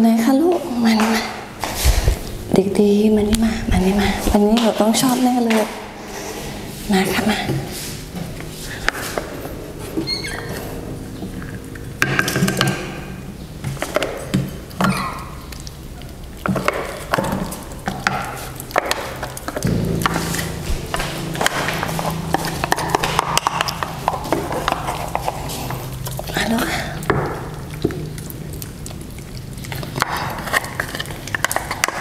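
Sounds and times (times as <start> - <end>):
low hum: 0.6 - 14.1, 19.2 - 27.8.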